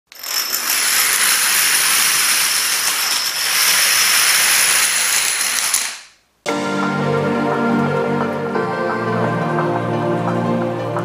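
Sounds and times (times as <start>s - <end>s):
plastic dominoes toppling: 0.1s - 6.2s.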